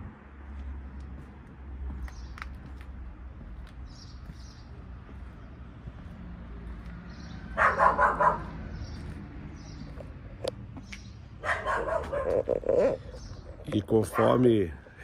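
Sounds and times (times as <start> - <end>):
dog barking: 7.6 - 8.6, 11.4 - 12.5, 14.1 - 14.4.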